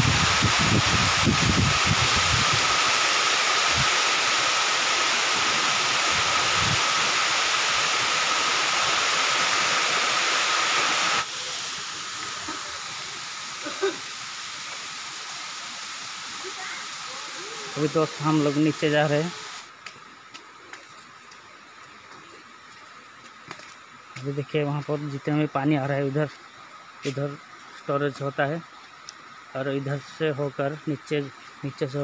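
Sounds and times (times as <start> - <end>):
waterfall rushing: 0.0 - 19.7.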